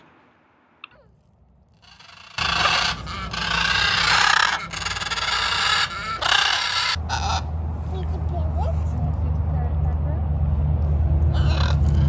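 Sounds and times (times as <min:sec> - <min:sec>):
macaws screeching: 0:01.7 - 0:07.5, 0:11.3 - 0:12.0.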